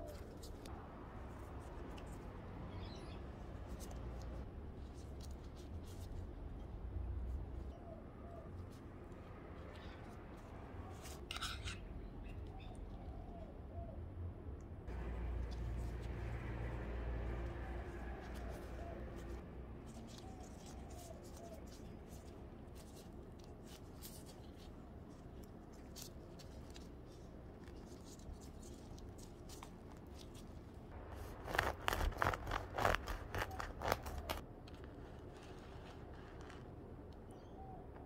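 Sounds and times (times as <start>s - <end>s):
knife cutting bread crust: 31.3s - 34.4s.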